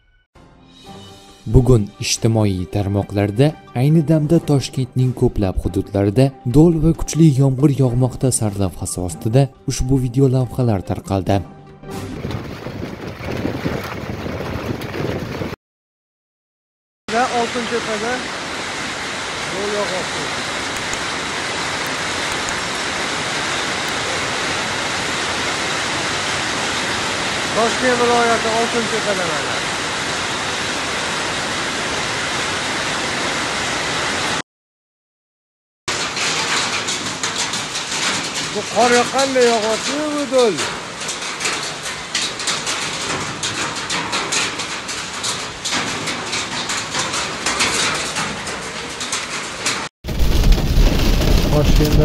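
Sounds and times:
heavy rain and hail: 11.9s - 15.6s, 17.1s - 34.4s, 35.9s - 52.0s.

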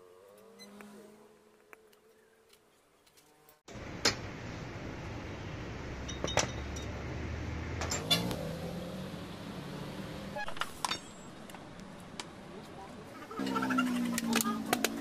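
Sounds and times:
sharp metallic clinks: 6.0s - 7.0s, 10.7s - 11.6s.

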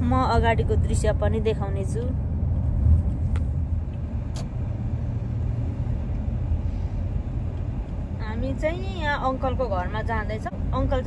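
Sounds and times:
car cabin rumble while driving: 0.0s - 11.0s.

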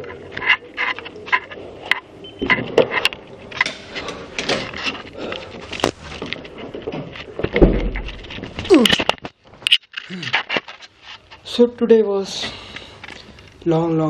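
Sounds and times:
camera handling rustle and clicks: 8.0s - 11.4s.

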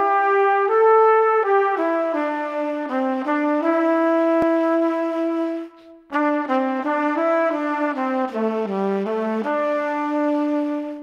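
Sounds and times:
brass melody: 0.0s - 11.0s.

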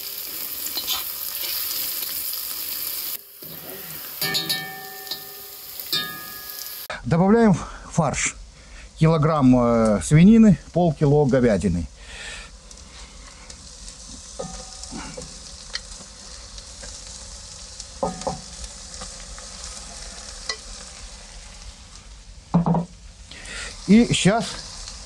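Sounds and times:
meat frying in hot oil: 0.0s - 6.9s, 9.7s - 25.0s
spoon clinking against plate: 4.2s - 6.6s.

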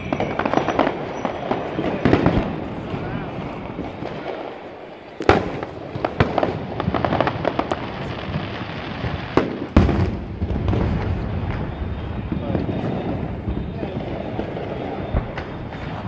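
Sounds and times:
crackling pops: 0.0s - 8.4s, 13.5s - 16.0s
fireworks bursting: 0.0s - 16.0s.

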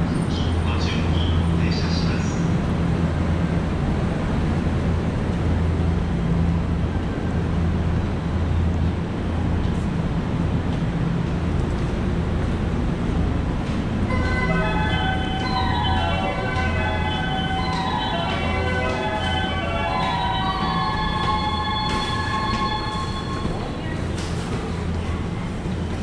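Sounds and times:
station platform rumble and hum: 0.0s - 26.0s
electronic chime melody: 14.1s - 23.7s.

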